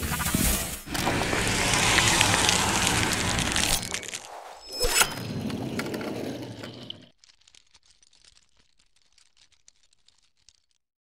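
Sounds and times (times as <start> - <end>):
logo intro sound effect: 0.0 - 5.3.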